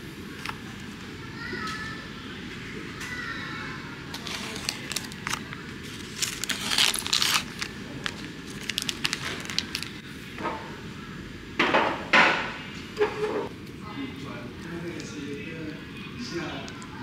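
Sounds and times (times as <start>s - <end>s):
plastic film crinkling: 4.1s - 10.0s.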